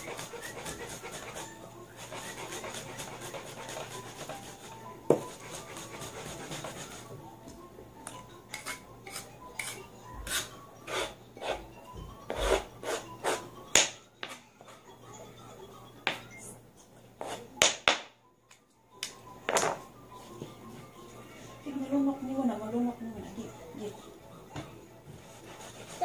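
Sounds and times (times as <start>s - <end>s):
pestle tapping on cutting board: 5.1s - 5.3s.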